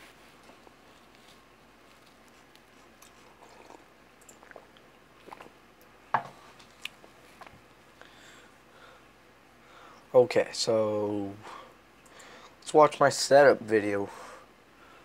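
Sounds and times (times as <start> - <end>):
person drinking and swallowing: 3.0 - 5.6.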